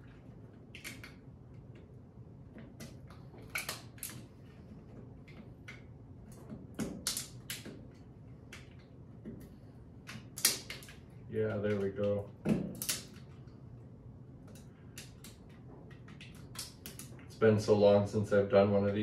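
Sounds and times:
plastic cracking and snapping: 6.8 - 7.8, 10.1 - 11.0, 11.6 - 13.3, 14.5 - 17.2.

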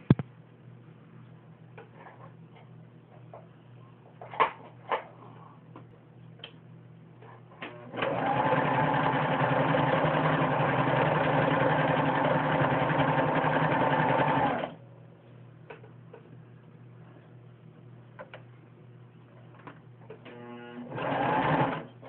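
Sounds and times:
sewing machine stitching: 7.7 - 14.8, 20.3 - 22.0.

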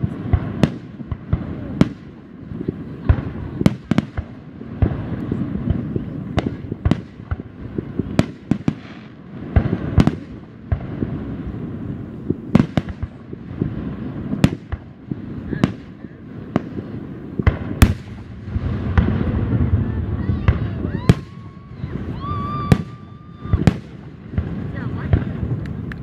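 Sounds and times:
firework bangs: 0.0 - 26.0
low rumble: 16.1 - 26.0.

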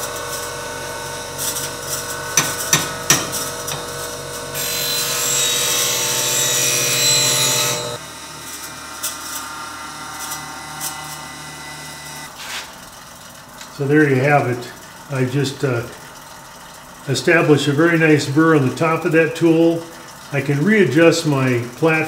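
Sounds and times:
metal scraper grinding on wheel: 0.0 - 12.6
bench grinder humming: 0.0 - 12.7.

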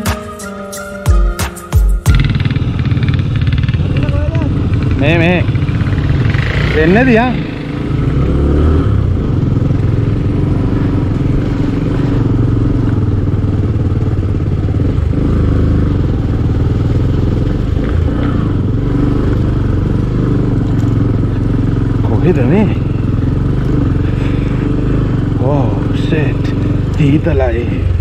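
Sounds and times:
motorcycle engine running: 2.1 - 28.0.

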